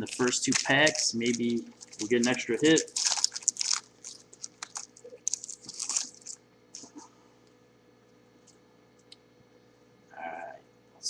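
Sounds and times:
card pack wrapper crinkling: 0.0 - 7.0.

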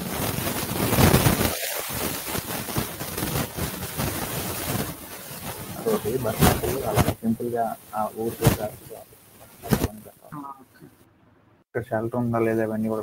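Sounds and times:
steady rushing noise: 0.0 - 10.2.

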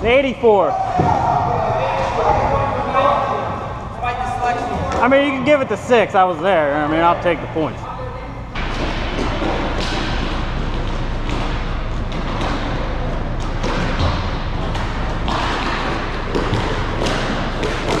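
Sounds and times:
heavy thud: 0.9 - 2.2
sticks and puck clacking: 8.6 - 18.0.

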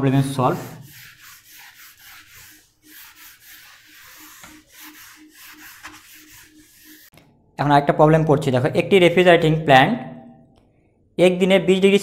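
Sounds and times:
eraser rubbing on whiteboard: 0.2 - 7.1.

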